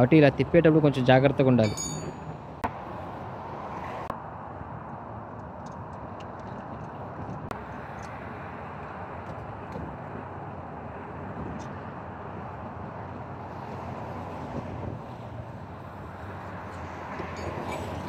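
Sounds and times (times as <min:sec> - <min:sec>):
open-air background noise: 0:00.0 - 0:18.0.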